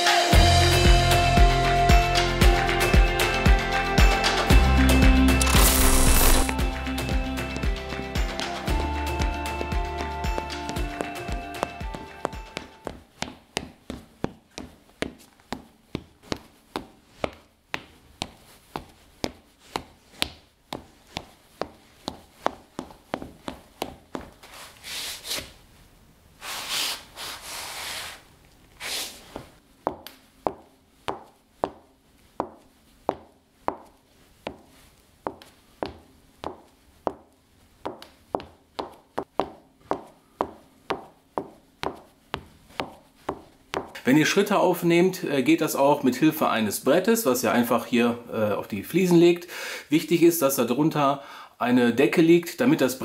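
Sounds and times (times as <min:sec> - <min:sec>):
soles scraping across tiles: 0:05.4 - 0:06.6, 0:10.3 - 0:25.7, 0:26.4 - 0:44.0
footsteps on tiles: 0:05.4 - 0:25.6, 0:26.6 - 0:44.1.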